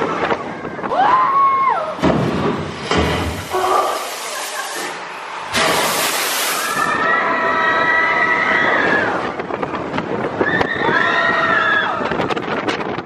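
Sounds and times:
wind rushing over microphone: 5.3s - 13.0s.

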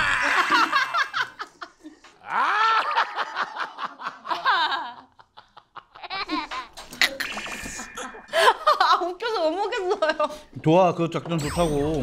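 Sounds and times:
people laughing: 0.2s - 6.8s, 8.0s - 10.2s.

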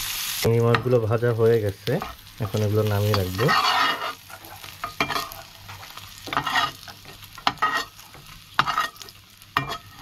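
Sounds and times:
oil sizzling: 0.0s - 10.0s
metal spatula scraping metal pan: 3.0s - 10.0s.

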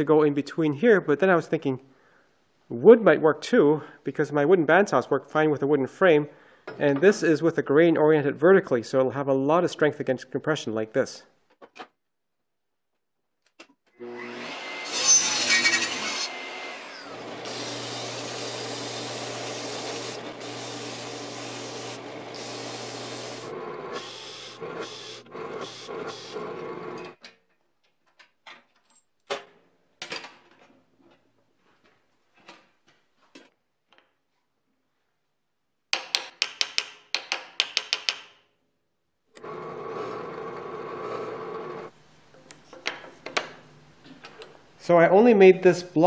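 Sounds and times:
drill press boring into wood: 14.0s - 27.2s, 39.4s - 41.9s
table saw cutting wood: 14.0s - 27.2s, 39.4s - 41.9s.

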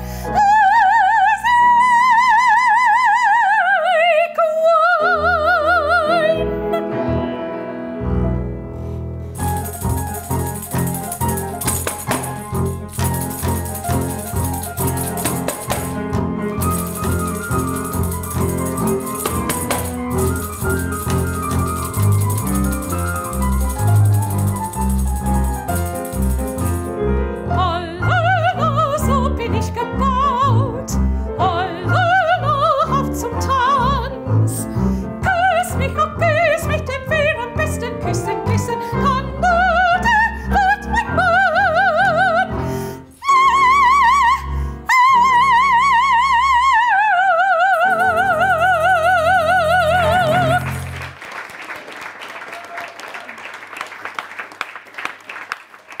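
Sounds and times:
piano: 0.0s - 56.0s
soprano singing with vibrato: 0.2s - 6.8s, 27.5s - 34.6s, 35.2s - 42.6s, 43.2s - 50.8s
double bass: 8.0s - 42.7s
audience applause: 50.6s - 56.0s.

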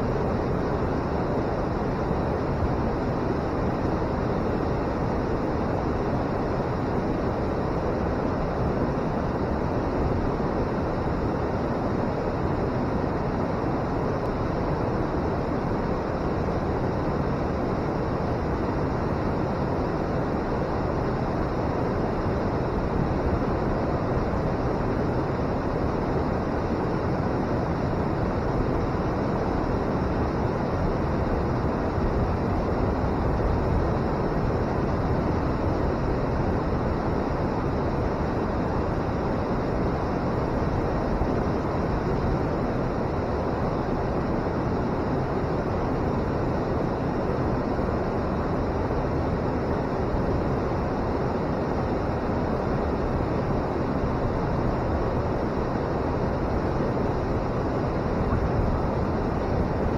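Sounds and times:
water roaring over a weir: 0.0s - 59.9s.

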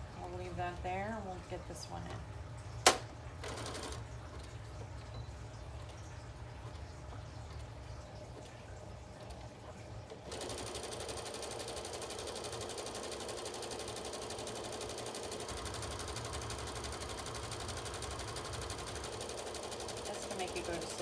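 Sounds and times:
electric sewing machine running: 3.4s - 4.0s, 10.1s - 21.0s.

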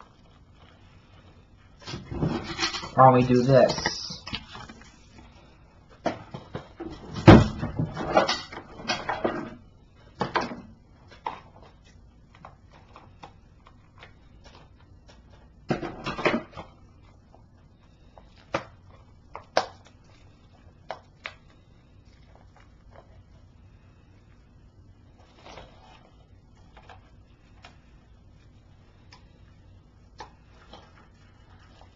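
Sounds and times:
plastic wrap crinkling: 0.0s - 1.9s.

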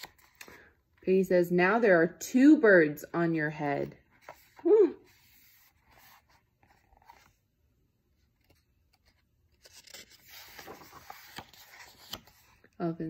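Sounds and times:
book page turning: 0.0s - 0.7s, 3.8s - 7.5s, 8.2s - 12.7s.

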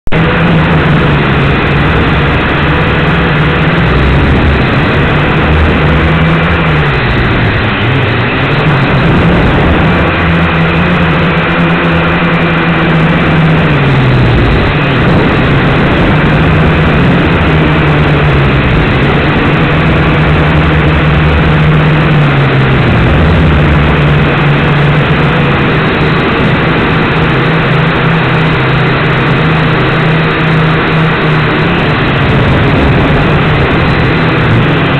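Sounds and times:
drone motors and propellers humming: 0.0s - 34.9s.

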